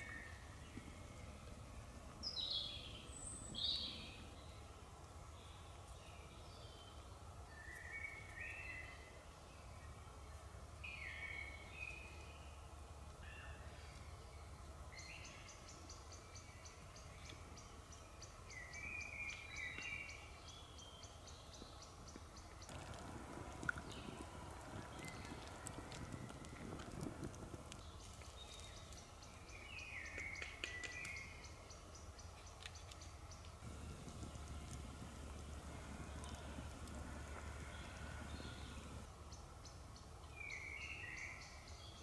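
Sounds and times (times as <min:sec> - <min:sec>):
songbirds singing: 0:00.0 - 0:42.0
campfire crackling: 0:21.5 - 0:40.3.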